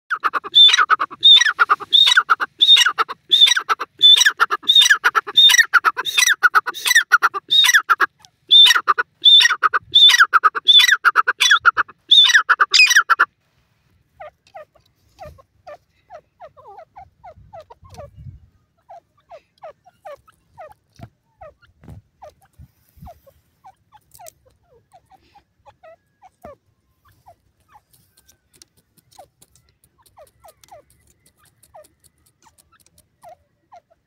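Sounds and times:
bird repeated loud call: 0.1s - 13.3s.

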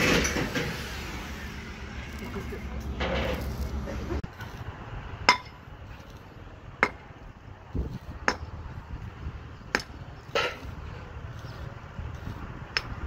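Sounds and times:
steel bar striking concrete: 5.2s - 7.2s, 7.8s - 8.6s, 9.6s - 11.7s, 12.7s - 13.0s.

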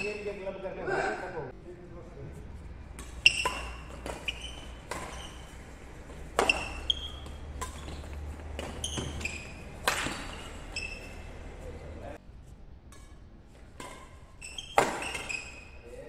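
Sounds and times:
rackets hitting shuttlecock: 2.9s - 11.5s, 12.8s - 15.9s.

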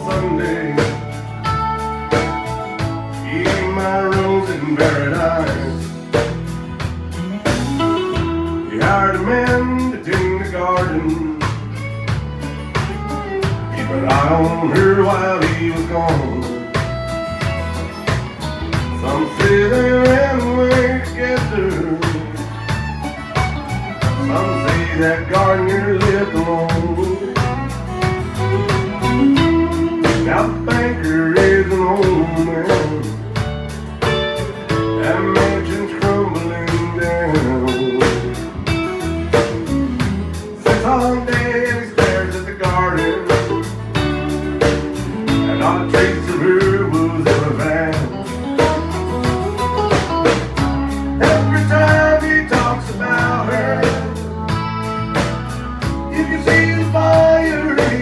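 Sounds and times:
electric and acoustic guitars: 0.0s - 58.0s
electric bass: 0.0s - 58.0s
fiddle: 0.0s - 58.0s
steady drum beat: 0.0s - 58.0s.

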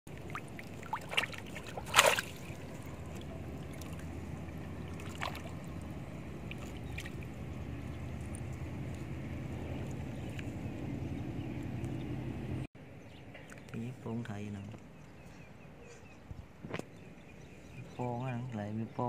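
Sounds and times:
fish splashing in water: 0.1s - 10.4s
steady low rumble: 0.1s - 13.2s.

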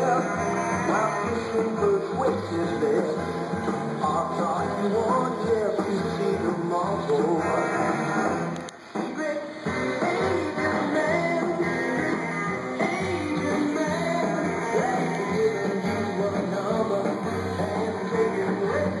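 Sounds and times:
guitar: 0.0s - 19.0s
person singing: 0.0s - 19.0s
rock music: 0.0s - 19.0s
bass line: 9.7s - 19.0s.

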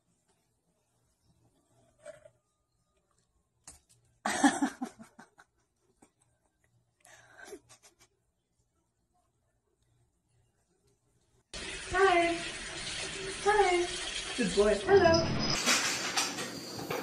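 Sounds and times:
person laughing: 4.3s - 5.7s, 7.4s - 8.2s.

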